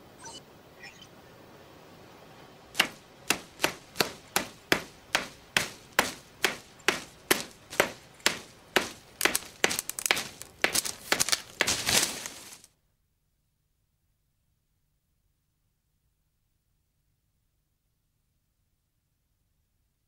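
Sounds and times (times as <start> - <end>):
stone tool chopping wood: 2.8 - 12.3.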